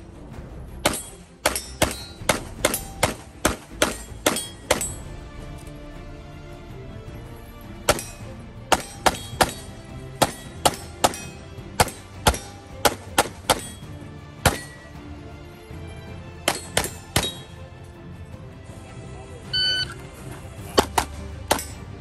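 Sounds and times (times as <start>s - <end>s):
background music: 0.0s - 22.0s
pistol shots: 0.8s - 5.0s, 7.9s - 14.8s, 16.5s - 17.6s, 20.8s - 21.8s.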